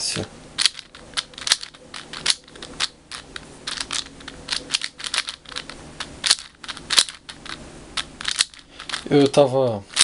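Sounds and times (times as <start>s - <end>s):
puzzle cube layers clicking: 0.6s - 9.2s.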